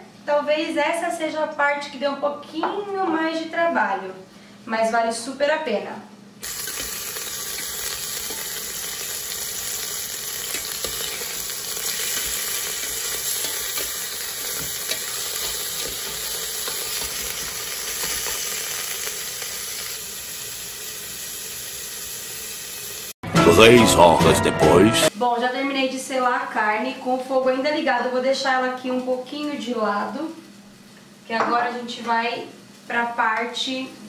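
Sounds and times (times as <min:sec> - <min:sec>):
meat sizzling in oil: 0:06.4 - 0:23.2.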